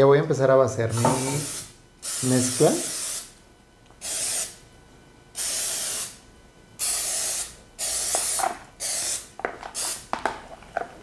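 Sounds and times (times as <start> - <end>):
aerosol spray hissing: 1.1 - 3.3, 4.0 - 4.6, 5.4 - 6.2, 6.8 - 10.0.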